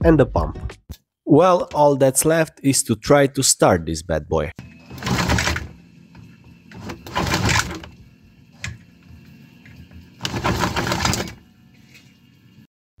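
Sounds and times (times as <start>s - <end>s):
engine cranking: 4.6s - 5.8s, 6.7s - 8.0s, 10.2s - 11.4s.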